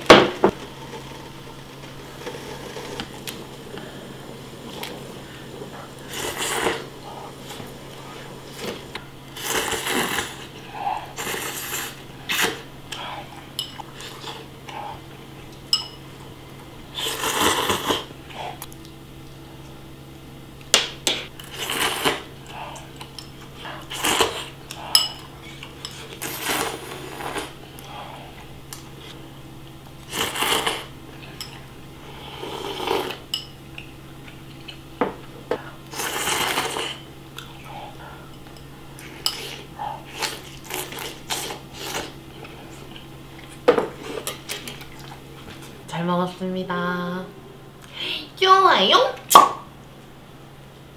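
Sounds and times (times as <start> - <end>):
noodle slurping: 0.8 - 13.3, 16.9 - 18.1, 21.4 - 22.9, 23.6 - 28.4, 30.0 - 30.9, 32.0 - 33.2, 35.9 - 37.6, 39.0 - 43.0.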